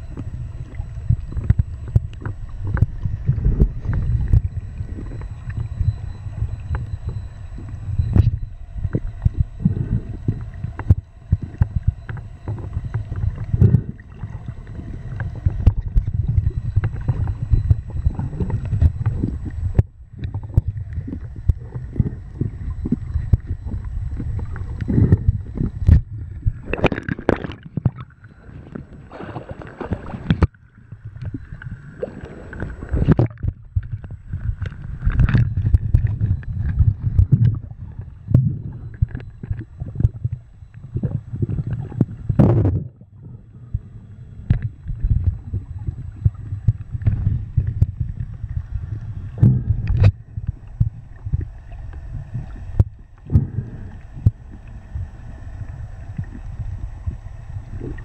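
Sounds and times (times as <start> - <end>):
bubbling: 0.0 - 58.0
muffled underwater water sloshing: 0.0 - 58.0
water splashes: 0.2 - 43.0.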